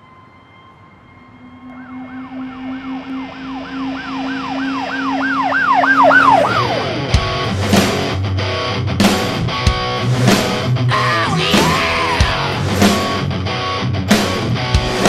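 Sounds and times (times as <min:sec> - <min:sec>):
yelping siren effect: 0:00.0 - 0:07.4
low hum: 0:00.0 - 0:11.0.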